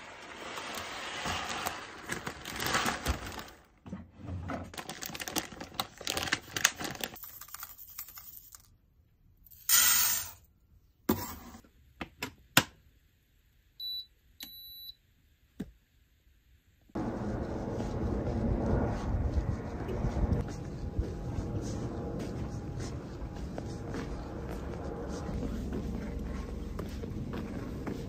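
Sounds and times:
rice poured into cooker pot: 0.0s - 3.1s
dry rice pouring into metal bin: 0.0s - 3.4s
pressure cooker high beeps: 13.8s - 15.0s.

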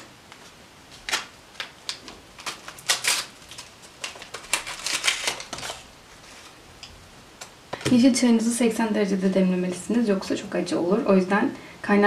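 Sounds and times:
paper envelope tearing and rustling: 1.0s - 6.6s.

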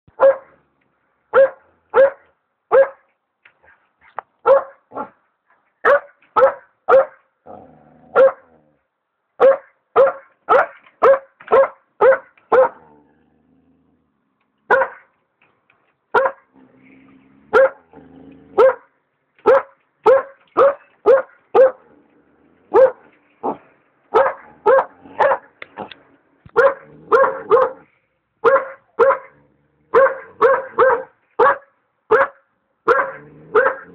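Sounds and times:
puppy barking: 0.1s - 0.6s, 1.3s - 3.1s, 4.4s - 5.2s, 5.8s - 7.2s, 8.1s - 8.5s, 9.4s - 12.9s, 14.7s - 15.1s, 16.1s - 16.5s, 17.5s - 17.9s, 18.5s - 21.9s, 22.7s - 33.9s.

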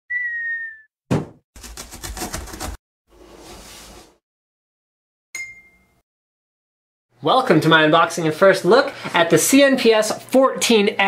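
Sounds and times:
high sliding whistle: 0.1s - 0.9s
sharp knock: 1.1s - 1.4s.

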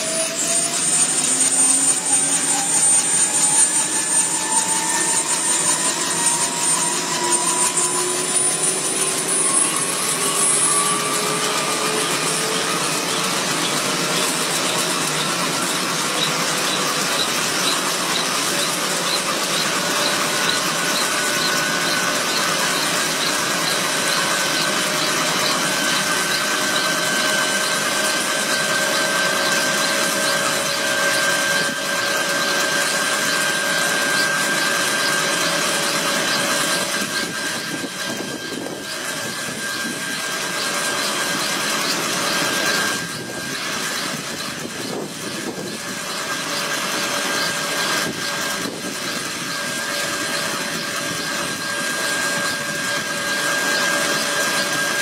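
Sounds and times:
helicopter turbine whine: 0.0s - 55.0s.

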